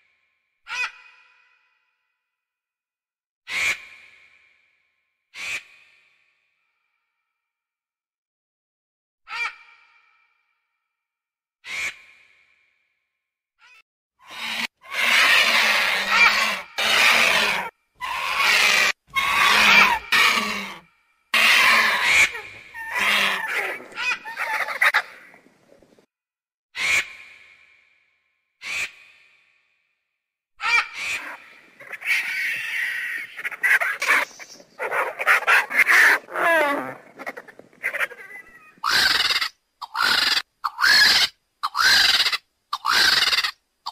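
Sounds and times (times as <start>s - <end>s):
vulture hissing and calling: 14.3s - 20.8s, 21.4s - 25.2s, 33.4s - 43.9s.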